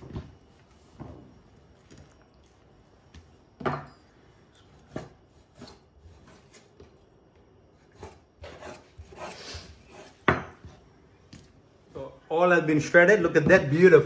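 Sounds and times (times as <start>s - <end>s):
knife scraping and rubbing: 7.8s - 10.2s.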